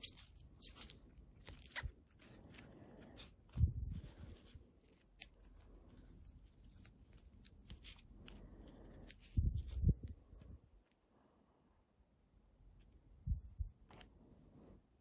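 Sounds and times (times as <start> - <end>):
cards sliding against each other: 0.0 - 10.6.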